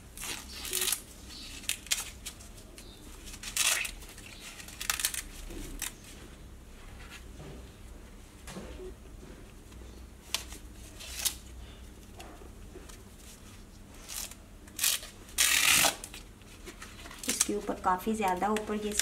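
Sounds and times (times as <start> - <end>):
corn husks ripping: 0.0 - 6.0, 14.0 - 16.2, 17.0 - 17.7.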